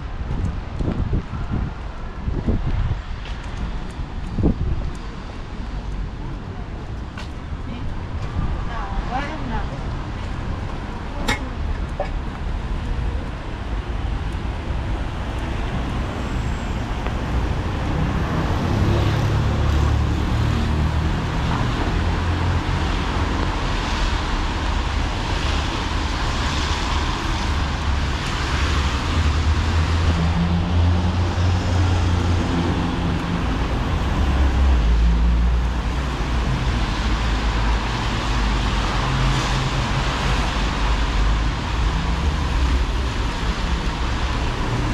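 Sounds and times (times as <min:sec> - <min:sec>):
cars passing on wet road: 0:00.0 - 0:44.9.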